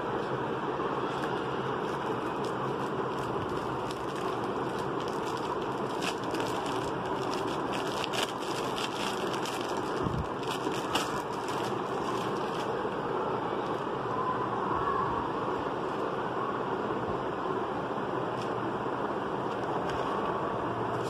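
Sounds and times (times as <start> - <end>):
plastic sleeve crinkling: 1.1 - 12.9.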